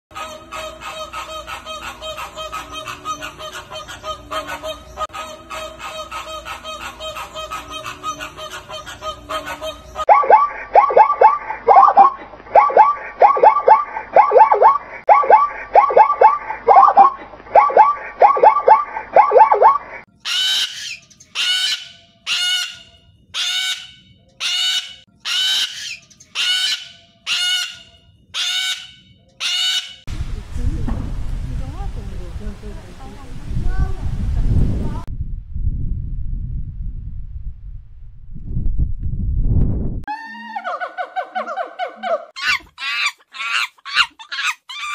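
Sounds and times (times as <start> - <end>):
flamingos honking: 0.1 - 30.1
cockatoo screeching: 0.2 - 30.1, 40.1 - 44.9.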